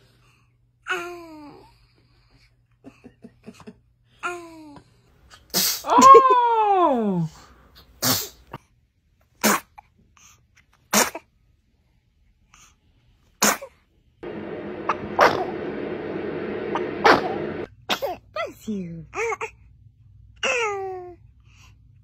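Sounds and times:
babies sneezing: 0:05.4 - 0:06.0, 0:08.0 - 0:08.6, 0:09.4 - 0:09.8, 0:10.9 - 0:11.3, 0:13.4 - 0:13.8.

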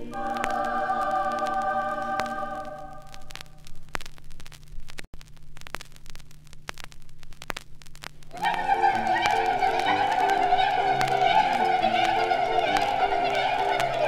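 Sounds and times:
music: 0:00.0 - 0:03.1, 0:08.4 - 0:14.0
low hum: 0:00.0 - 0:14.0
vinyl crackles and pops: 0:00.0 - 0:14.0.

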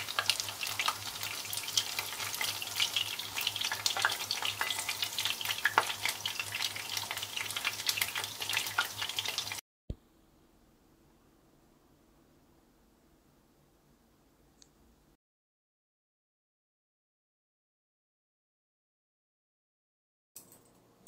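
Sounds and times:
chicken frying in hot oil: 0:00.0 - 0:09.6.

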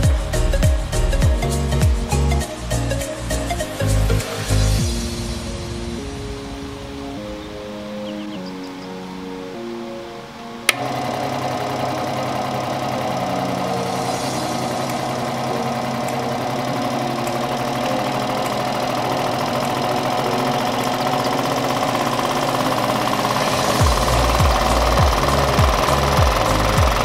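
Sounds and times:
scroll saw motor humming and rattling: 0:00.0 - 0:03.8, 0:10.6 - 0:27.0.

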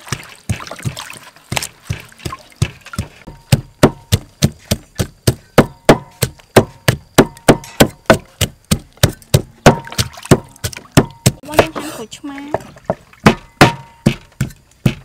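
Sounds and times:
wooden pestle pounding in mortar: 0:00.0 - 0:15.0.

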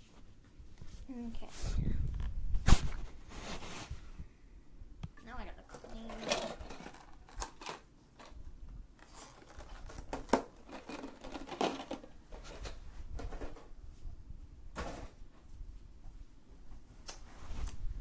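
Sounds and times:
small objects rustling and knocking: 0:05.6 - 0:13.8.

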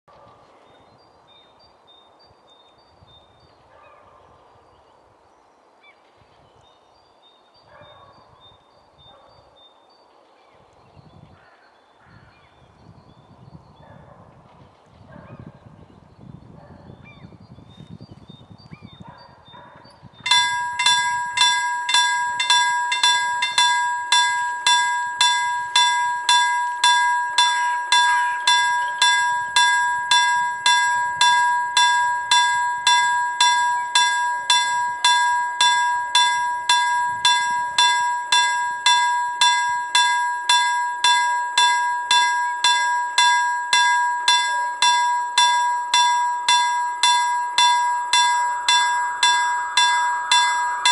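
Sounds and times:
level crossing warning bell: 0:20.2 - 0:50.9.

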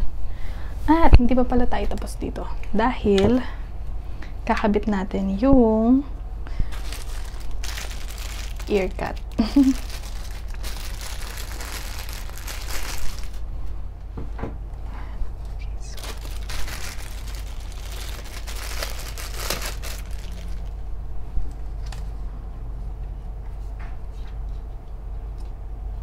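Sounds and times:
plastic bags crinkling: 0:06.6 - 0:13.5, 0:15.8 - 0:20.8.

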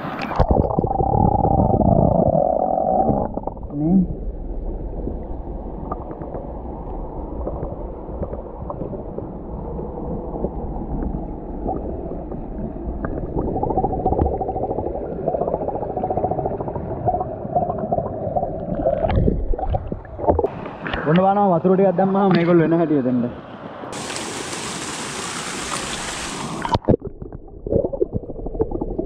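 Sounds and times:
waterfall gurgling into pool: 0:24.0 - 0:29.0.

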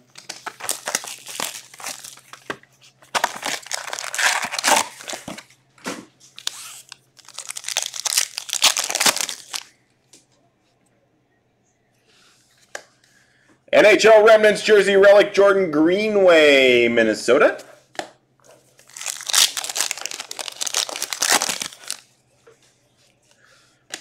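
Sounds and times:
plastic wrapping crinkling and tearing: 0:00.1 - 0:05.5, 0:06.4 - 0:09.8, 0:18.8 - 0:22.0.

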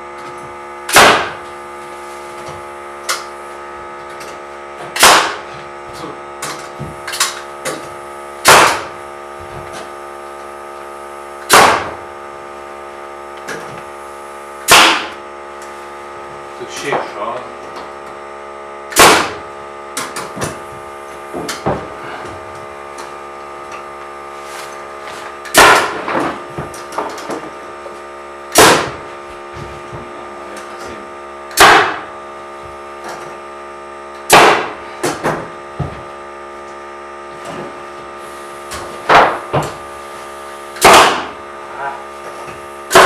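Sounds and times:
air compressor humming: 0:00.0 - 0:43.0
nail gun firing: 0:00.9 - 0:01.4, 0:05.0 - 0:05.4, 0:06.4 - 0:09.0, 0:11.4 - 0:12.0, 0:14.6 - 0:15.2, 0:18.9 - 0:19.4, 0:25.5 - 0:26.3, 0:28.5 - 0:29.0, 0:31.5 - 0:32.1, 0:34.2 - 0:35.4, 0:40.8 - 0:41.4.

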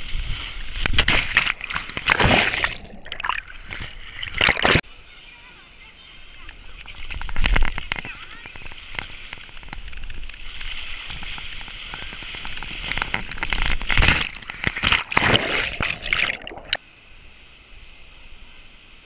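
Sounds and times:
water rushing and splashing: 0:00.6 - 0:04.8, 0:06.2 - 0:16.8.

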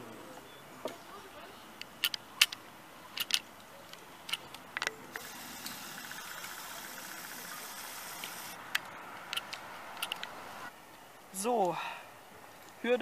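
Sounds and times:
sharp clicks: 0:08.2 - 0:10.4.

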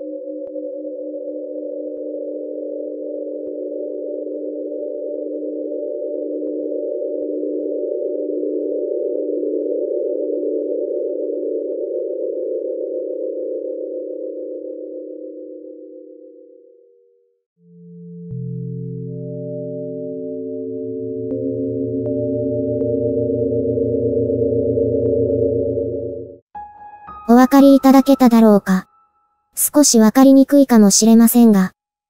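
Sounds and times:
eerie synthesized drone: 0:17.7 - 0:26.4.

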